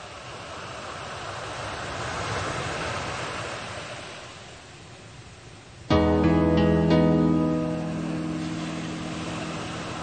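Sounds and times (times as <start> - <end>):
ocean wave surging: 5.9 - 10.0.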